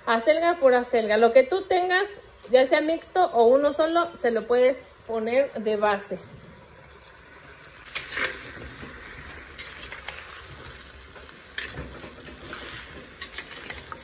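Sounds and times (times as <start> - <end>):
meat sizzling in oil: 7.9 - 14.0
spatula scraping a pot: 7.9 - 14.0.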